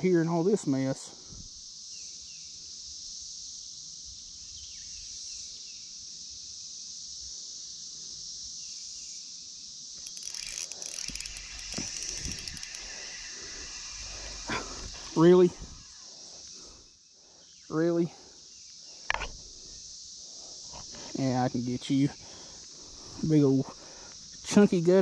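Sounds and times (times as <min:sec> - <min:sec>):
insects buzzing: 0:00.0 - 0:25.0
clicking and rustling handling noise: 0:10.0 - 0:13.0.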